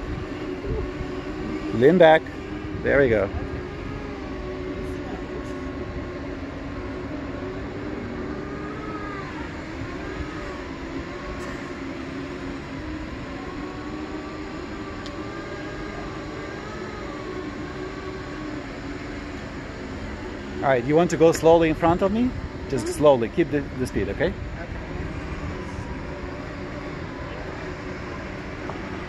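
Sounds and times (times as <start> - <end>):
electric motors whining: 0.0 - 29.0
steady rumbling noise: 0.0 - 29.0.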